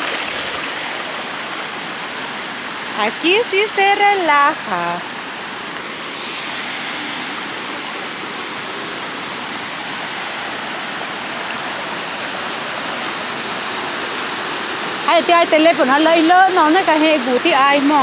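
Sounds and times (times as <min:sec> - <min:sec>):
stream rushing over rocks: 0:00.0 - 0:18.0.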